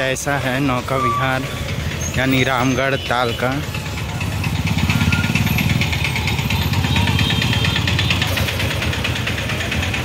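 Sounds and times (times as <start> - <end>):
street traffic: 0.0 - 10.0
vehicle engine pulsing: 0.0 - 10.0.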